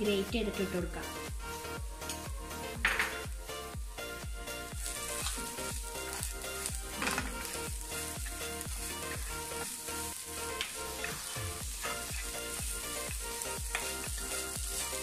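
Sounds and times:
background music with beat: 0:00.0 - 0:15.0
food sizzling in a pan: 0:00.7 - 0:15.0
spatula stirring in pan: 0:04.8 - 0:15.0.

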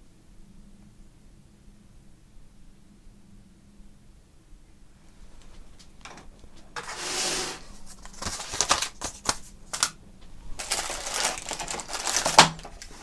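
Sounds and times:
hands handling cardboard box: 0:06.1 - 0:09.9, 0:10.6 - 0:13.0
rustling scrape: 0:06.4 - 0:09.6, 0:10.3 - 0:13.0.

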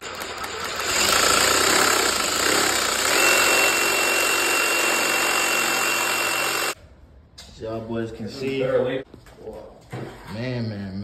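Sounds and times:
reciprocating saw cutting pipe: 0:00.6 - 0:06.8.

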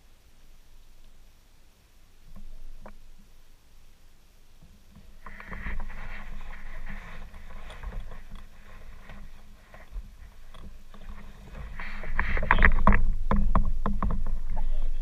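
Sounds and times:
low wind rumble: 0:00.0 - 0:15.0
water splashing against kayak: 0:04.7 - 0:15.0.

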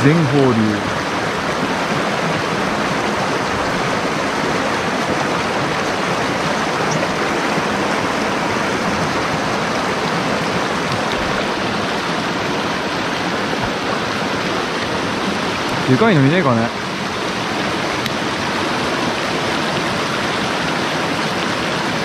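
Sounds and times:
stream running over rocks: 0:00.0 - 0:22.0.

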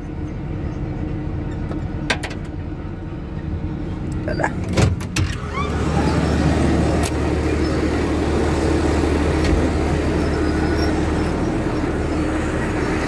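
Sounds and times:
bulldozer diesel engine idling: 0:05.4 - 0:13.0.

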